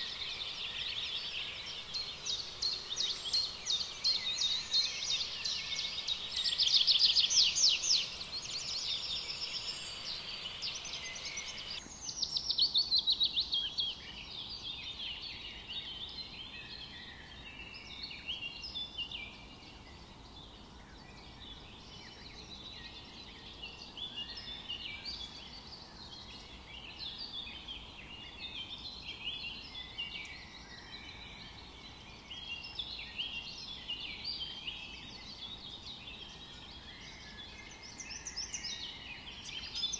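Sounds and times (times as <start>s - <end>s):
birds chirping and calling: 0.0s - 12.8s.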